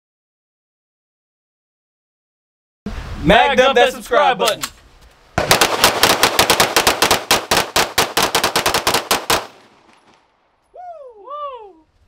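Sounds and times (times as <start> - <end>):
rapid gunfire: 5.4 - 10.1.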